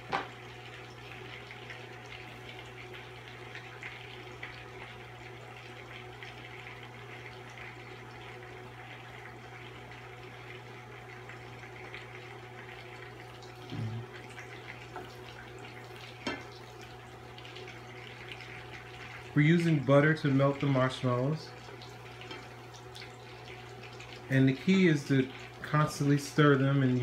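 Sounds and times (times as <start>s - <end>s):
butter sizzling in a pan: 0.0s - 26.9s
cooktop low hum: 0.0s - 27.0s.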